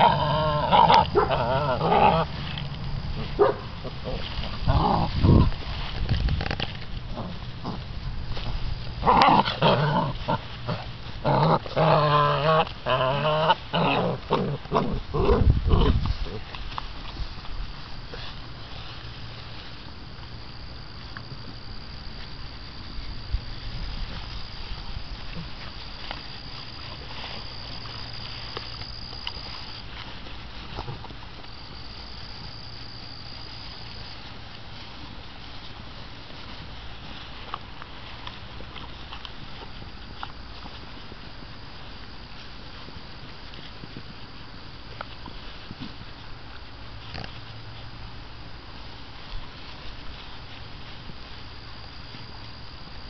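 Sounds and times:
puppies crying: 0.0s - 2.4s
insect trilling: 0.0s - 16.6s
puppies growling: 0.0s - 17.1s
puppies scuffling in grass: 0.0s - 53.0s.

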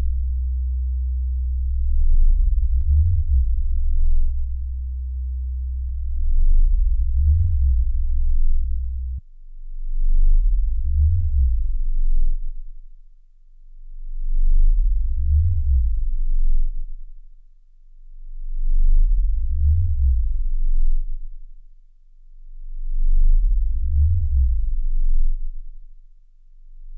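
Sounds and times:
low electronic drone: 0.0s - 12.9s, 13.8s - 17.1s, 18.1s - 21.5s, 22.4s - 25.8s.

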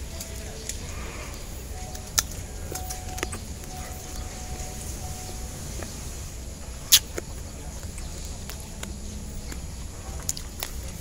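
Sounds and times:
chewing fruit with crunches: 0.0s - 11.0s
steady low rumble: 0.0s - 11.0s.

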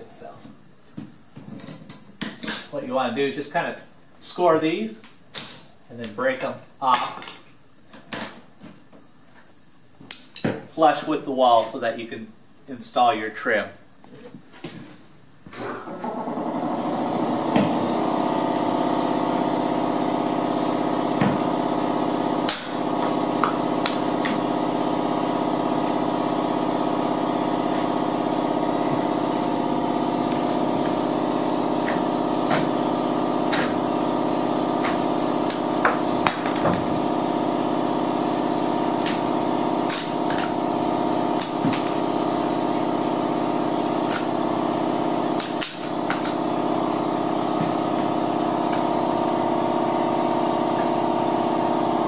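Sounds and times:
power tool buzzing: 16.0s - 52.0s.

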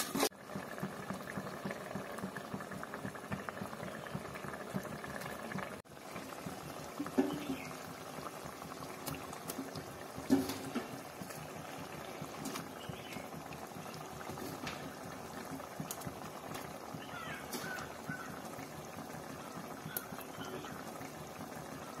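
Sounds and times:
curry bubbling in a pot: 0.0s - 22.0s.

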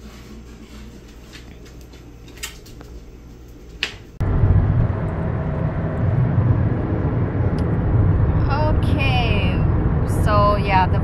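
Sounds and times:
car cabin road rumble: 4.2s - 11.0s.

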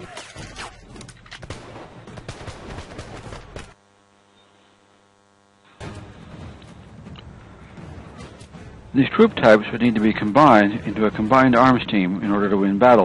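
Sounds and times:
musket shots: 0.0s - 3.8s
faint steady hum: 3.2s - 8.6s.

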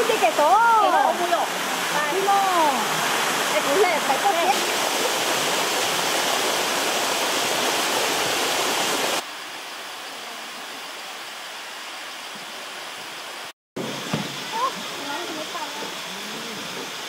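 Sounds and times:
water rushing over rock: 0.0s - 9.3s.

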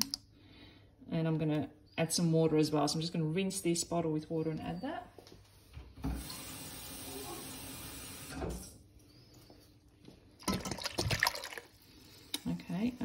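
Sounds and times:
water glugging out of a bottle: 10.4s - 11.7s
water running into a bottle: 10.4s - 11.8s
water splashing into a pan: 10.4s - 11.8s.

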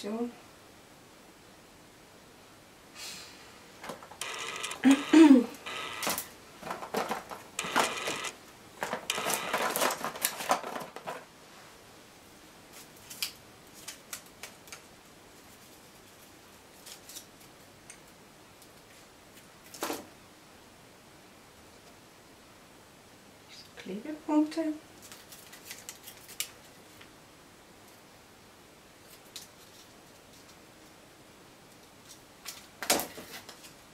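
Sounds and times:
rustling and scraping of supplies: 3.8s - 11.8s, 25.0s - 27.1s, 31.7s - 33.9s.

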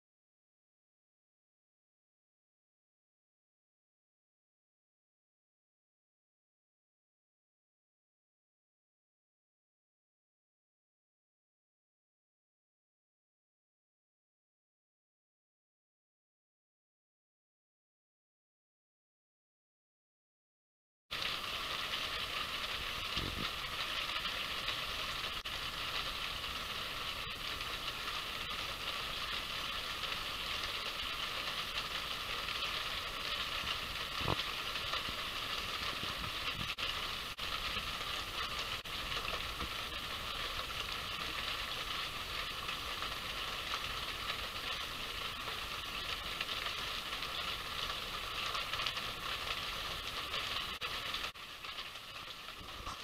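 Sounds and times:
steady rain falling: 21.1s - 53.0s.

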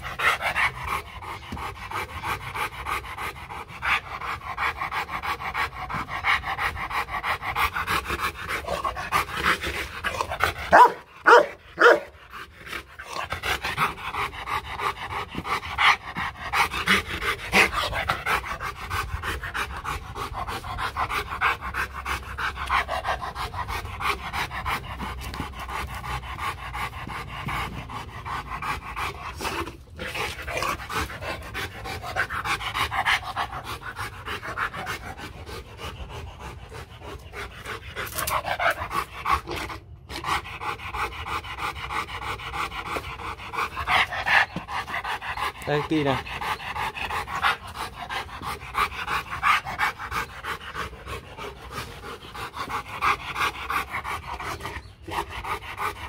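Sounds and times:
dog panting rapidly: 0.0s - 56.0s
dog barking loudly: 10.7s - 12.2s.

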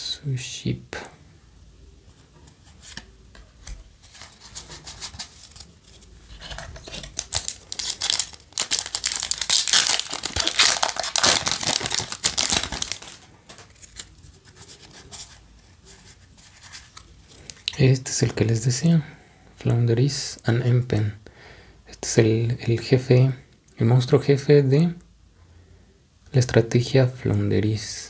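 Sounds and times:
handling cards: 2.2s - 18.4s
foil wrapper crinkling and tearing: 4.1s - 15.0s.

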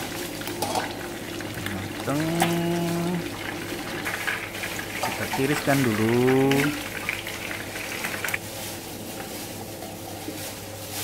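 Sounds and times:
hot oil sizzling in a pan: 0.0s - 8.4s.

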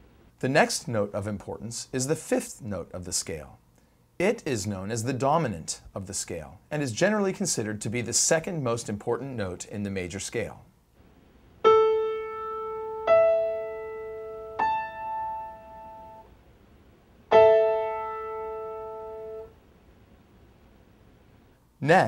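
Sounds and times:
piano notes and chord: 11.6s - 16.3s, 17.3s - 19.5s.

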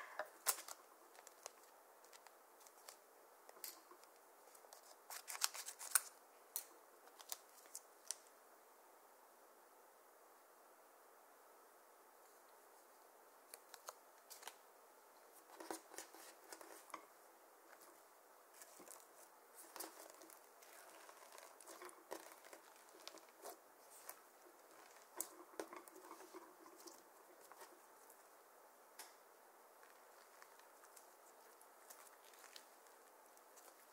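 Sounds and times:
slime clicking and crackling: 18.6s - 27.7s.

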